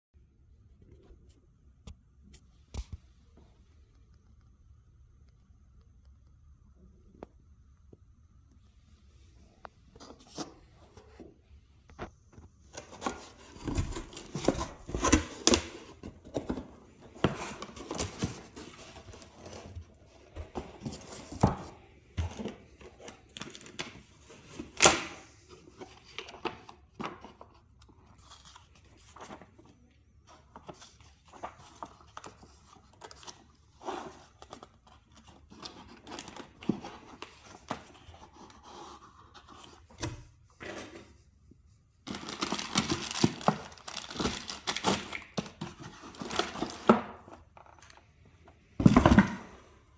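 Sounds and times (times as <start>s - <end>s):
plastic wrap crinkling: 42.0s - 46.9s.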